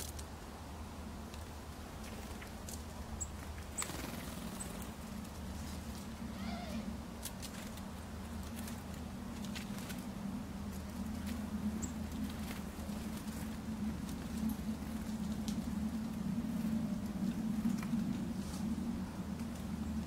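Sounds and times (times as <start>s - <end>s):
steady low hum: 0.0s - 20.0s
small birds chirping: 1.9s - 5.4s, 6.2s - 7.0s, 8.2s - 16.0s.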